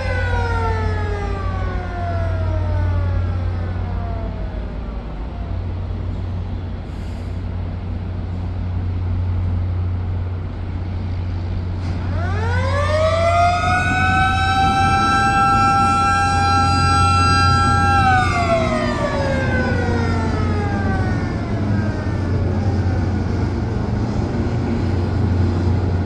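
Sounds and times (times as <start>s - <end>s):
warning siren wailing: 0.0s - 6.0s, 12.0s - 24.9s.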